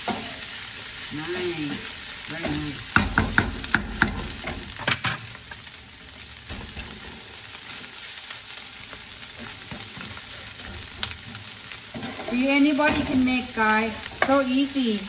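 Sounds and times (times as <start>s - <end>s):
rice sizzling in a frying pan: 0.0s - 15.0s
spatula tapping a pan: 2.4s - 5.2s.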